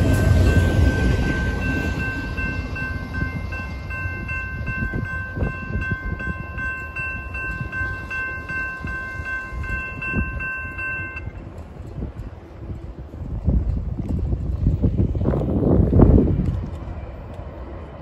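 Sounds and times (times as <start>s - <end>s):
crossing warning bell ringing: 0.0s - 12.5s
train rumble: 0.0s - 18.0s.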